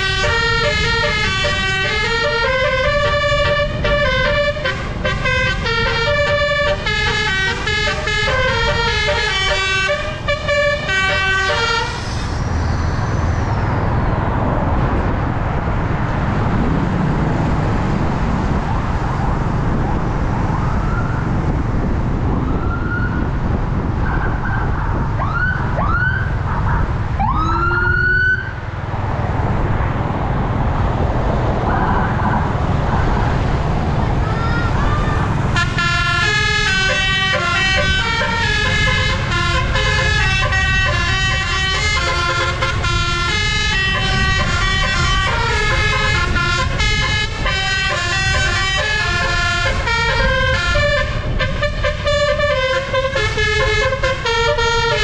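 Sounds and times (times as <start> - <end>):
musical air horn tune: 0.0 - 12.4, 35.5 - 55.0
rising horn blasts: 0.0 - 12.5, 34.2 - 55.0
bus engine and road noise: 0.0 - 55.0.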